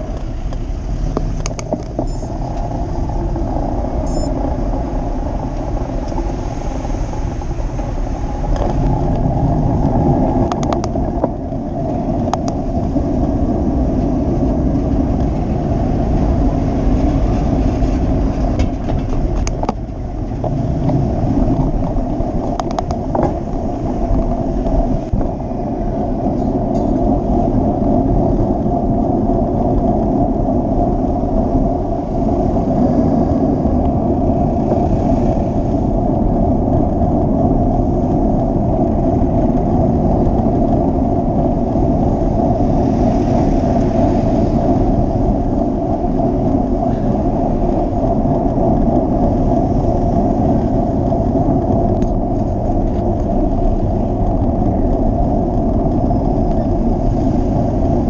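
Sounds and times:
road traffic engines: 0.0s - 36.9s
wind rumble on microphone: 0.0s - 58.0s.

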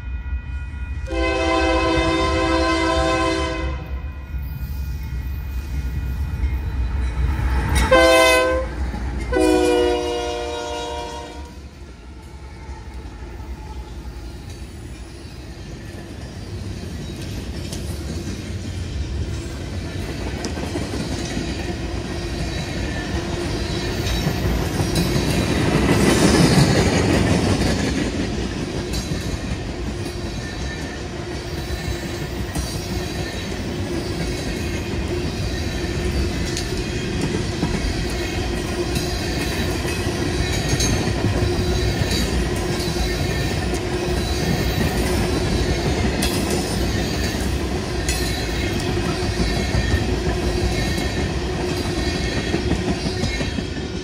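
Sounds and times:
freight train rumbling past: 0.0s - 54.0s.

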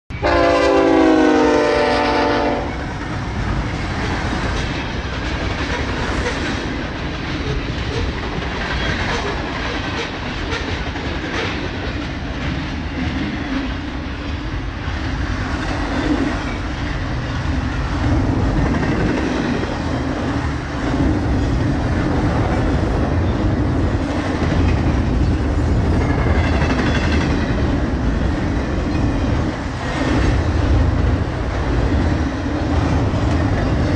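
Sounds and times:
freight train rumbling past: 0.1s - 33.9s
locomotive air horn chord: 0.2s - 2.8s.

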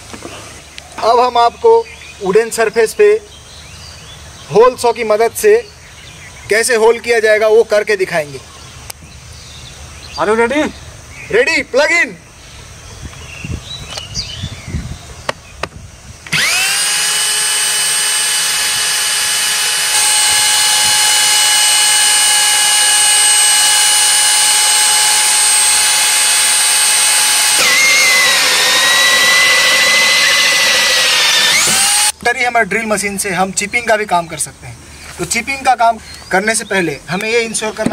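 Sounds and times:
hole saw drill cutting wood: 16.3s - 32.2s.

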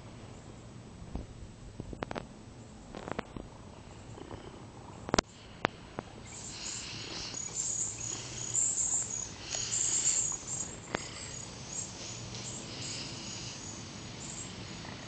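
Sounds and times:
high-pitched insect chirping: 6.2s - 15.0s.

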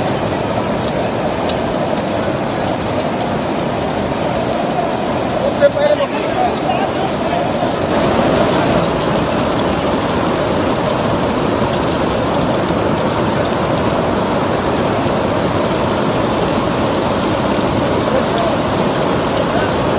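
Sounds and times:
heavy rain and hail on paving: 0.0s - 19.9s.

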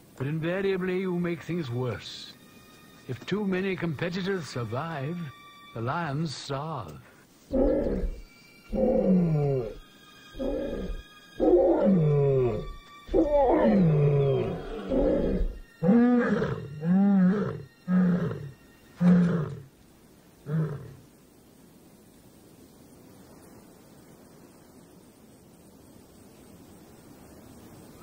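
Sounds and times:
lion grunting: 7.5s - 9.8s, 10.4s - 19.7s, 20.4s - 21.0s
lion roaring: 7.5s - 19.7s, 20.4s - 21.0s.

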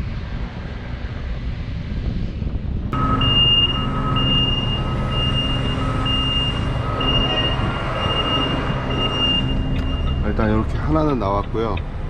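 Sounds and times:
diesel engines rumbling: 0.0s - 12.0s
reversing alarm beeping: 3.0s - 11.0s.

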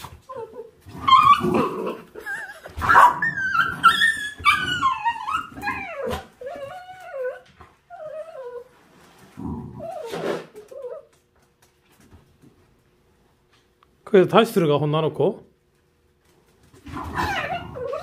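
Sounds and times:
dog growling and barking: 0.0s - 7.3s, 9.3s - 10.8s, 16.8s - 18.0s
puppy yelping and whining: 0.0s - 11.2s, 16.8s - 18.0s.

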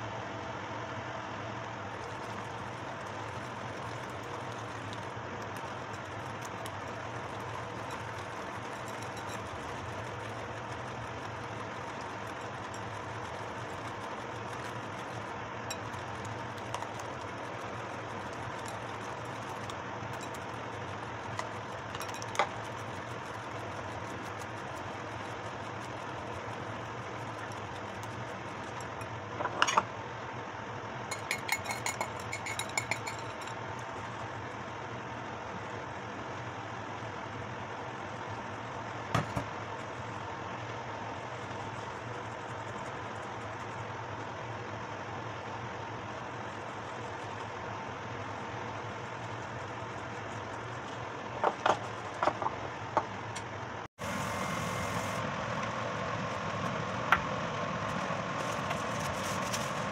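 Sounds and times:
mechanical hum: 0.0s - 59.9s
whisk beating batter in a bowl: 1.8s - 29.3s, 31.1s - 35.9s, 36.8s - 44.5s, 45.4s - 52.2s.

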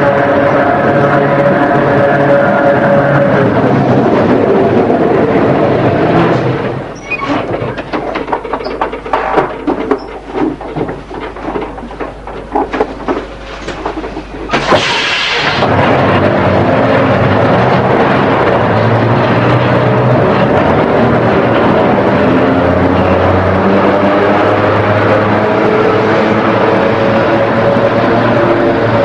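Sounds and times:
electric tram motors whining: 0.0s - 29.0s
short loud hiss: 14.5s - 15.6s.

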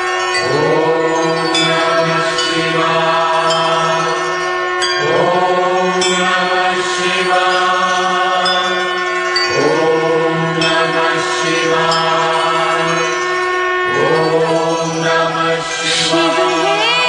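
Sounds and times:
steady drone: 0.0s - 17.0s
person chanting: 0.4s - 4.3s, 5.0s - 8.9s, 9.5s - 13.1s, 13.9s - 17.0s.

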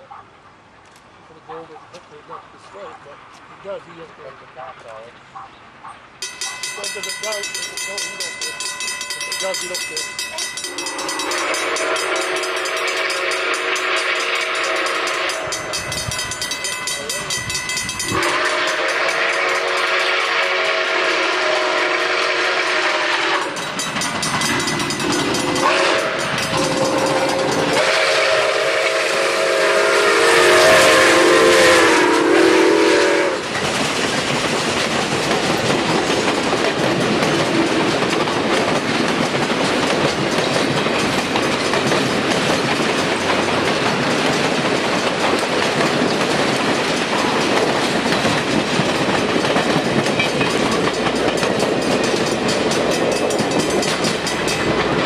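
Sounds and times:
train clickety-clack: 6.2s - 55.0s
steam locomotive whistle: 10.6s - 16.4s, 18.0s - 23.8s, 24.5s - 33.5s.

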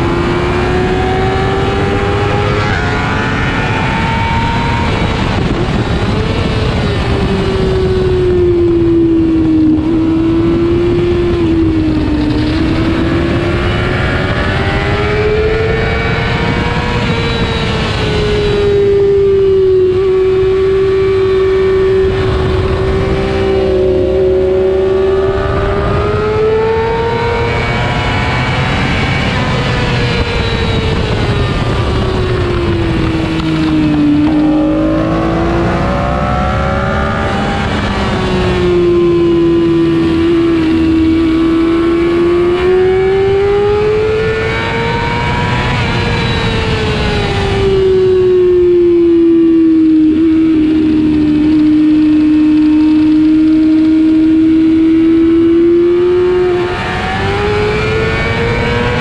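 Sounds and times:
motorcycle engine revving high: 0.0s - 59.0s
wind and road noise: 0.0s - 59.0s.

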